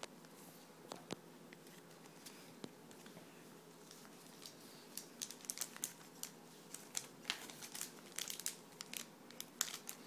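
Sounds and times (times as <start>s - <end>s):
foil card packs crinkling: 3.8s - 10.0s.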